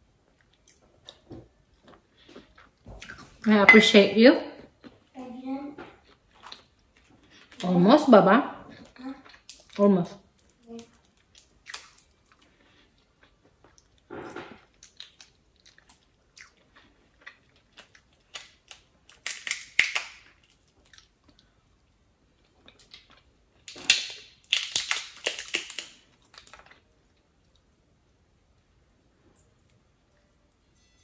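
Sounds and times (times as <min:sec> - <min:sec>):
shells cracking and crackling: 0:18.2 - 0:20.4, 0:23.7 - 0:26.7.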